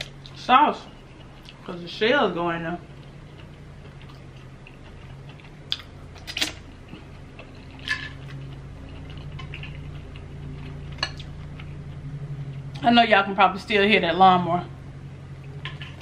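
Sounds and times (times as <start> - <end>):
lawnmower engine droning: 6.8 - 16.0.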